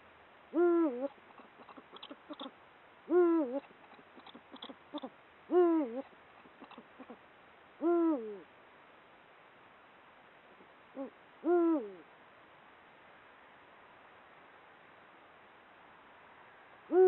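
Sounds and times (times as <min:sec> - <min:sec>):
owl hooting: 0:00.5 - 0:07.2, 0:07.8 - 0:08.5, 0:10.9 - 0:12.1.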